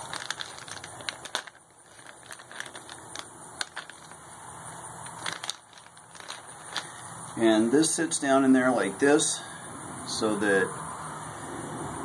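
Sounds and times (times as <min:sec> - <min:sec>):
paper packet crinkling: 0:00.0 - 0:07.4.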